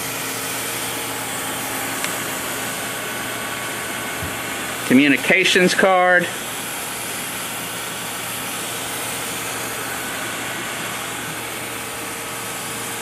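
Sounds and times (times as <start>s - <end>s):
cooling fan whirring: 0.0s - 13.0s.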